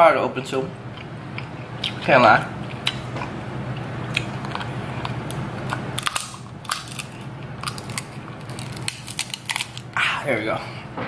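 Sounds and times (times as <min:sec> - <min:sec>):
crab shell cracking: 0:04.1 - 0:10.0.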